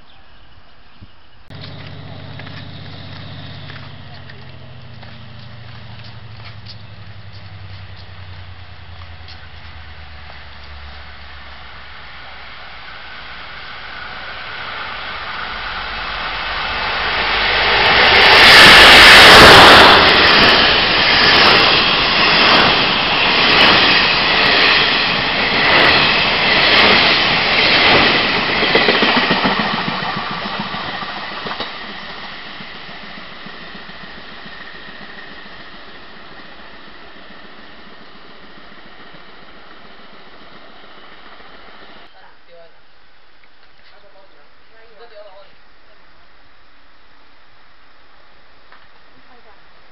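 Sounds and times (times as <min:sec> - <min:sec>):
train wheels clattering: 0:01.5 - 0:11.1, 0:17.4 - 0:39.3
diesel locomotive passing: 0:01.5 - 0:42.2.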